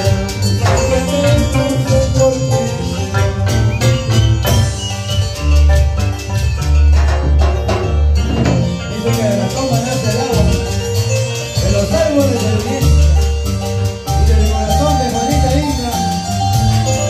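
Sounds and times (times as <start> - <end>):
person singing: 0.0 - 3.8
latin dance band over loudspeakers: 0.0 - 17.0.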